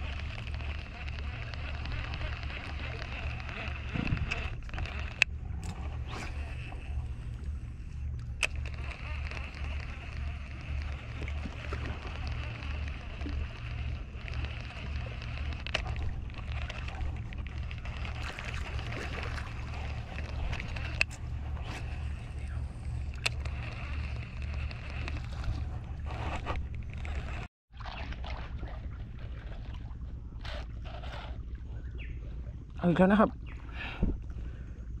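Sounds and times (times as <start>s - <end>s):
sharp clicks: 0.0s - 7.4s, 8.1s - 27.5s
water lapping against rocks: 0.0s - 34.9s
low steady rumble: 0.0s - 35.0s.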